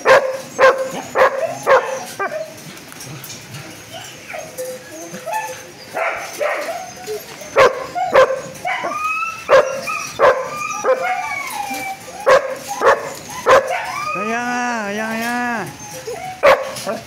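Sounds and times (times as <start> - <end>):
dog barking excitedly: 0.0 - 2.5, 5.9 - 6.9, 7.6 - 11.4, 12.2 - 17.0
dog whining: 0.0 - 17.0.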